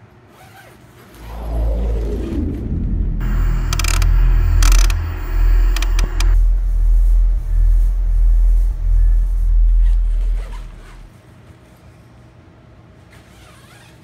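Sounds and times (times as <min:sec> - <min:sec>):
crackling static: 0:01.2 - 0:11.1
deep rumbling sound effect: 0:01.2 - 0:11.1.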